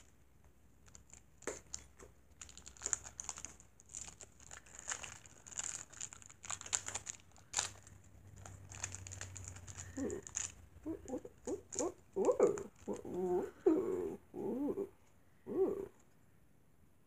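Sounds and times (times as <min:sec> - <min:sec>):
packaging crinkling: 0:00.8 - 0:13.2.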